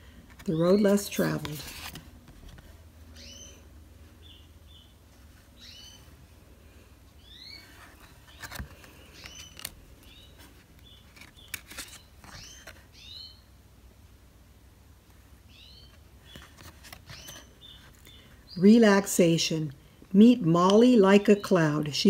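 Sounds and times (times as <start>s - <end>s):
bird chirping: 3.1s - 6.2s, 7.2s - 13.5s, 15.4s - 18.9s.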